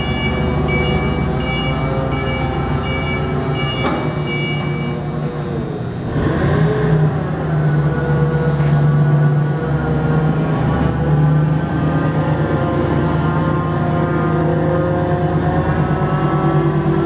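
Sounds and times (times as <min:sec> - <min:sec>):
high-pitched warning beeper: 0:00.0 - 0:05.2
forklift engine running: 0:00.0 - 0:17.0.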